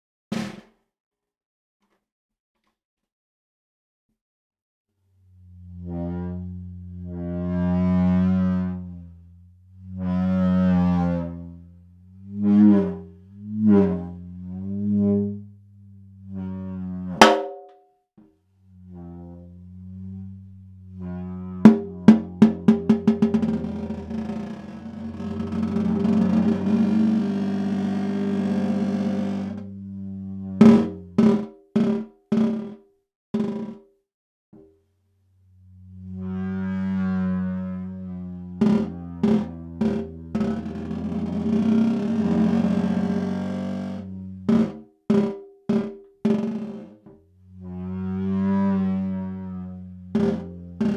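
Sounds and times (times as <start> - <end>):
snare drum strikes: 0.3 - 0.8
mallet moaning on drum head: 16.4 - 17.7, 19.1 - 32.7, 38.1 - 43.8, 47.8 - 50.9
superball dragged on snare drum: 21.0 - 28.9, 30.5 - 32.8.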